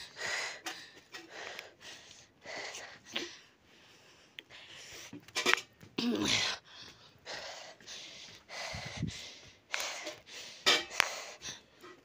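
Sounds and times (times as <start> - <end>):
breathy puffs: 6.2 - 12.0.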